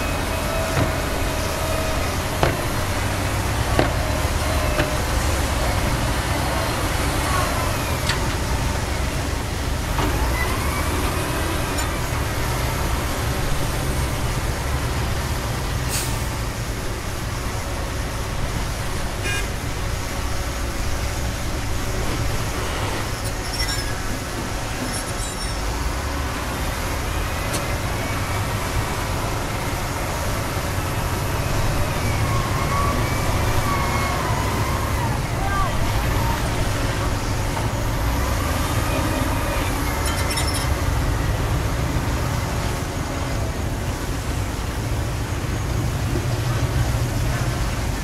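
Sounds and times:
diesel truck engine running: 0.0 - 48.0
faint squeals: 23.1 - 25.7, 38.6 - 40.8.

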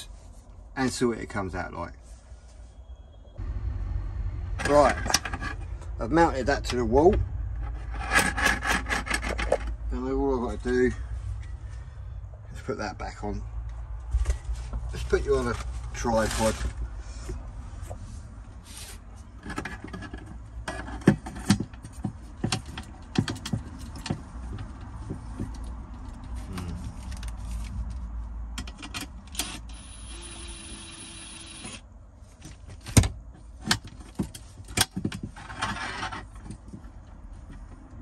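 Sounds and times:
clicks and knocks of handling: 19.4 - 29.2
small motor whirring: 29.4 - 31.8.

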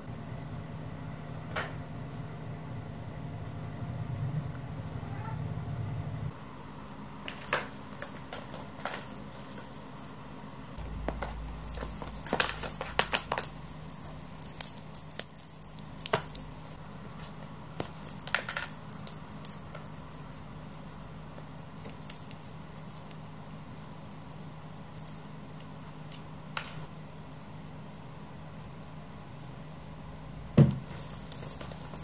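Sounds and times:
faint steady hum: 0.0 - 32.0
cat toys jingling and rattling: 7.3 - 10.4, 11.2 - 16.8, 17.8 - 21.1, 21.8 - 24.4, 25.0 - 25.6, 30.9 - 32.0.

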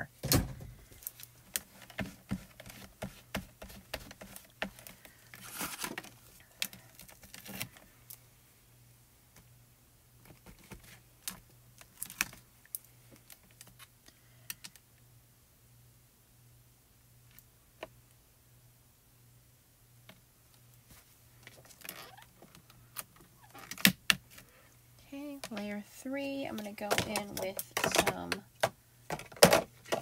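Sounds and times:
plastic sheet crinkling: 0.9 - 7.8.

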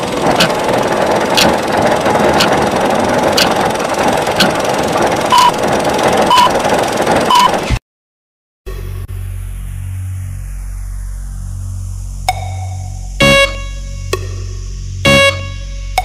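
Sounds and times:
engine running steadily: 0.0 - 7.8, 8.7 - 16.0
sharp mechanical clicks: 0.0 - 7.8.

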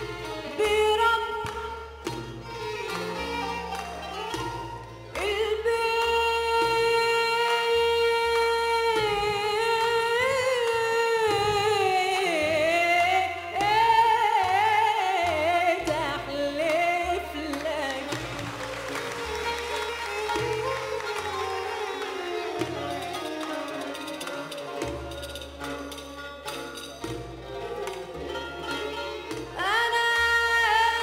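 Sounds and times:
woman singing: 0.0 - 1.9, 5.1 - 21.8, 29.4 - 31.0
orchestra of violins and double bass: 0.0 - 7.4, 8.0 - 31.0.

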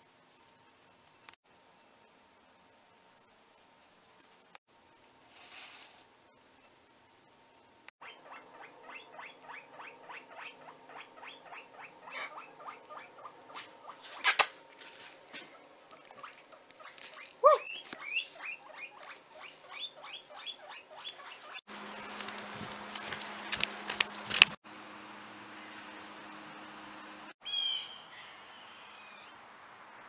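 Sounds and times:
outdoor background noise: 0.0 - 30.0
guinea pig squeaking: 8.0 - 14.4, 15.9 - 22.4.

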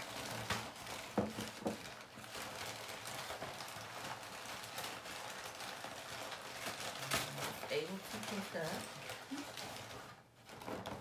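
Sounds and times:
packing paper crinkling: 0.0 - 11.0.

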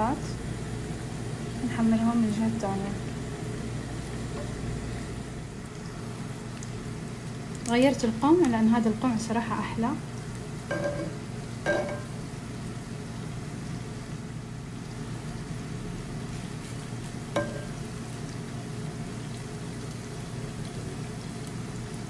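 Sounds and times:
dough sizzling in hot oil: 0.0 - 22.0
utensil clinking against pan: 10.7 - 12.1.

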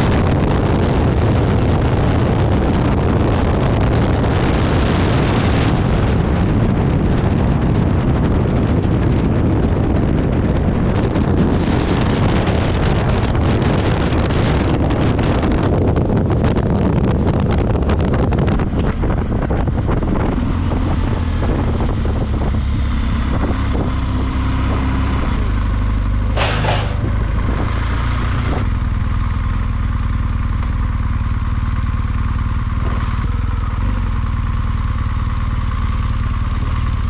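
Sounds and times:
motorcycle engine running: 0.0 - 37.0
wind rushing over microphone: 0.0 - 37.0
tyres rattling over cattle guard: 26.3 - 27.7.

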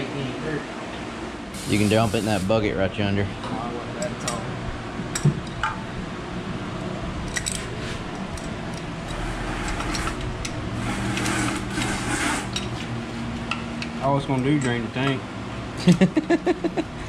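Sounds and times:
steady low hum: 0.0 - 17.0
rustling and scraping: 7.5 - 8.2.

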